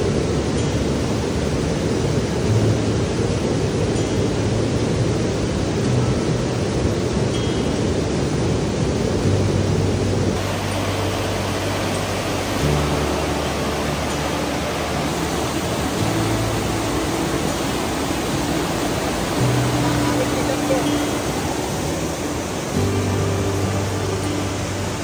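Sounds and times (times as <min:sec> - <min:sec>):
whitewater rushing over boulders: 0:00.0 - 0:25.0.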